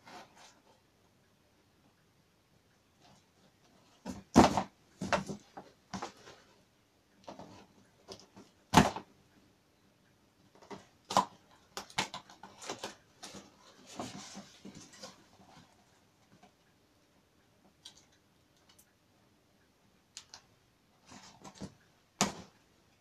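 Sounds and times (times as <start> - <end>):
cardboard rustling and scraping: 12.1 - 15.8.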